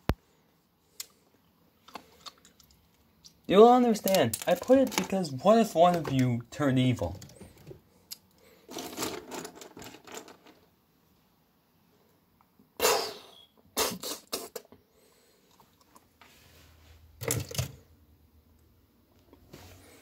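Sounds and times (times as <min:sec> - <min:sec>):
plastic toy bricks rattling: 0:04.0 - 0:05.2, 0:08.7 - 0:10.6.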